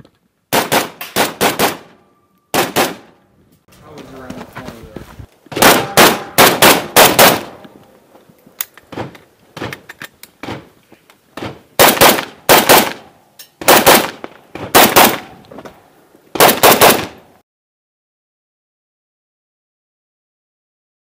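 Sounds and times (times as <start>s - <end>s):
rifle shots: 0.5s - 3.2s, 5.5s - 7.6s, 11.4s - 13.0s, 13.6s - 15.4s, 16.4s - 17.2s.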